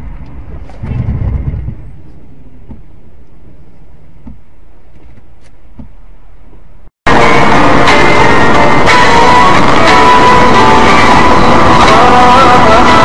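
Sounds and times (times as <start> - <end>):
vehicle and road noise: 0.0 - 13.0
loud music: 7.1 - 13.0.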